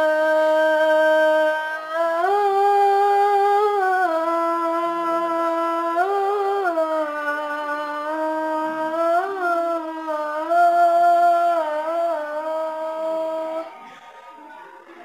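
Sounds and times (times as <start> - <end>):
boy chanting call to prayer: 0.0 - 15.0.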